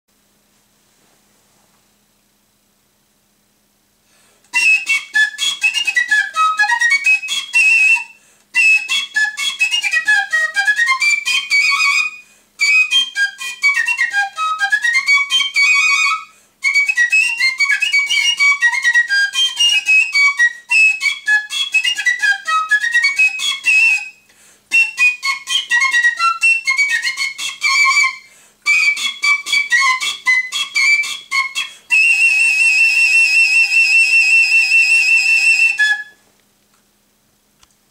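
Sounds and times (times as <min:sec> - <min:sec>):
player breathing: 0:04.0 - 0:04.5, 0:28.3 - 0:28.6
piccolo playing a melody: 0:04.5 - 0:36.2.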